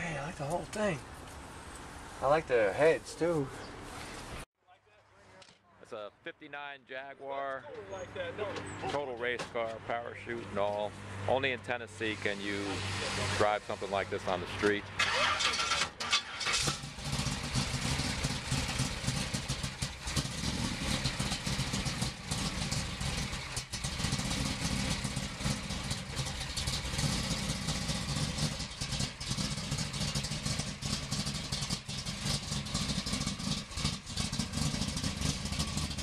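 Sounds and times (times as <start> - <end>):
car engine idling: 0.0 - 1.0, 10.1 - 36.0.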